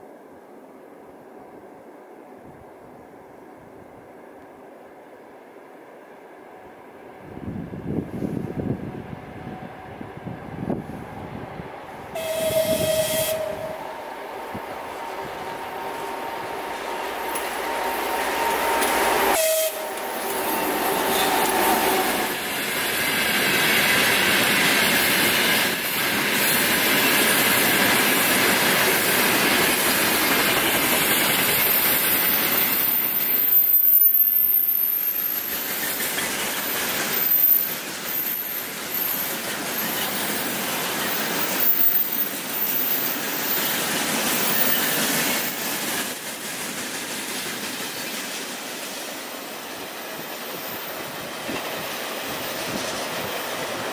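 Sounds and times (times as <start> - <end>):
diesel locomotive engine: 0.0 - 53.9
freight train rolling on rails: 0.0 - 53.9
locomotive horn blast: 12.1 - 22.3.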